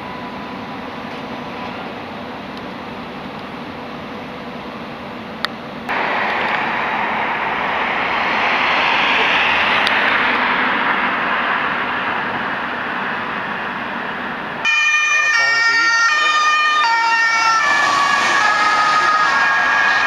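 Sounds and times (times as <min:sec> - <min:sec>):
train rushing past: 0:00.0 - 0:20.0
emergency vehicle siren: 0:05.9 - 0:20.0.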